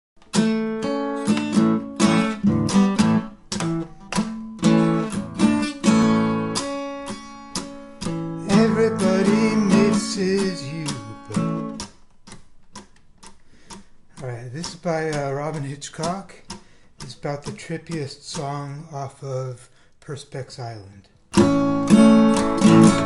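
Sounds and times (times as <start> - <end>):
acoustic guitar strumming chords: 0.2 - 12.4, 21.4 - 23.0.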